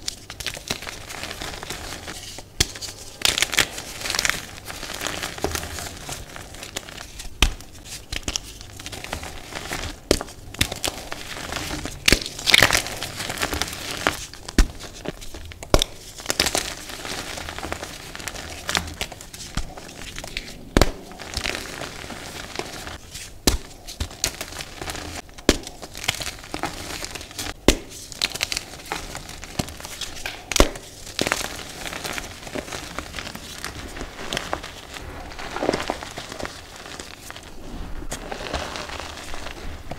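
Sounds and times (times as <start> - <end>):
chalk pieces crunching: 0.0 - 39.9
dry rustle of chalk powder: 30.8 - 39.9.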